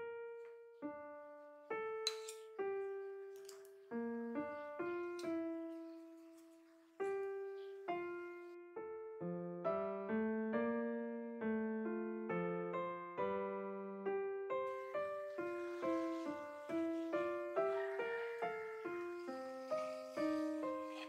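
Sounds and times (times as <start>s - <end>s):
slow gentle piano melody: 0.0s - 21.0s.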